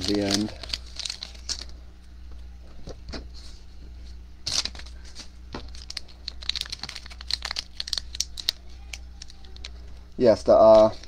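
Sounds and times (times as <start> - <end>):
foil wrapper crinkling: 0.0 - 1.8, 4.5 - 9.9, 10.5 - 11.0.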